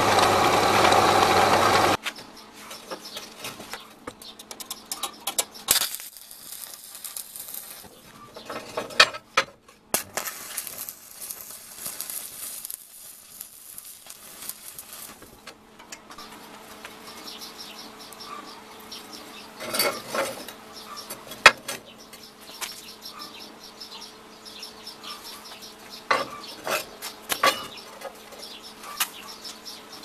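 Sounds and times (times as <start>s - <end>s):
arc welding crackle: 0.0s - 2.0s, 5.6s - 8.2s, 9.9s - 15.6s.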